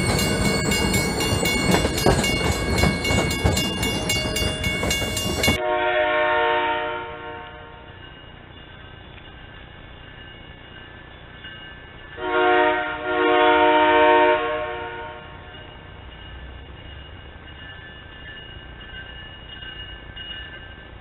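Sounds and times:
diesel locomotive horn blasts: 0:05.5 - 0:08.0, 0:12.2 - 0:15.5.

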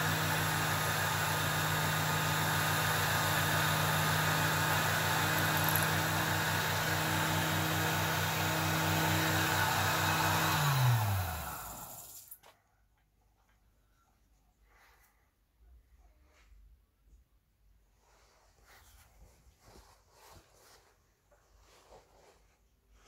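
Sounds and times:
lathe motor humming: 0:00.0 - 0:12.0
drill bit boring wood: 0:00.0 - 0:12.1.

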